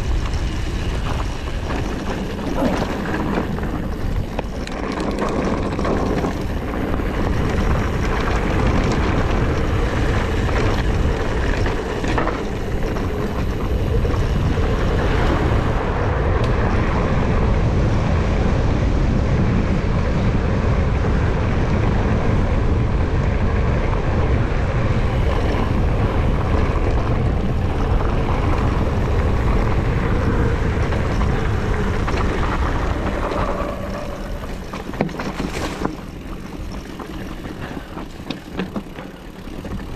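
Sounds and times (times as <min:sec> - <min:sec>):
tyres rattling over loose stones: 0:00.0 - 0:09.0, 0:31.0 - 0:39.9
wind rushing over microphone: 0:00.0 - 0:39.9.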